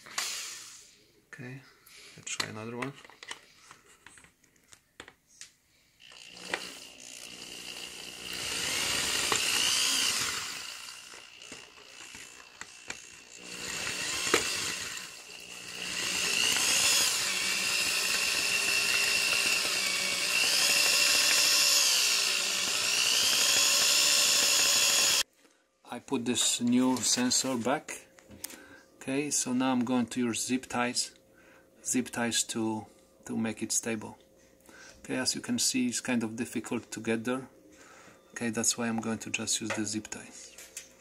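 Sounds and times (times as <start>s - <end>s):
power drill motor whine: 6.0s - 25.3s.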